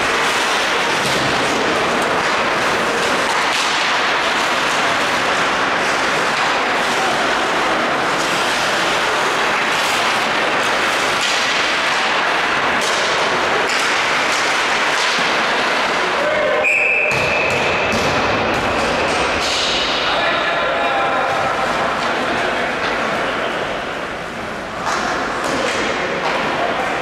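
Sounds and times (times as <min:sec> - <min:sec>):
skates scraping on ice: 0:00.0 - 0:16.2
hockey sticks and puck clacking: 0:00.0 - 0:27.0
referee's whistle: 0:16.6 - 0:17.6.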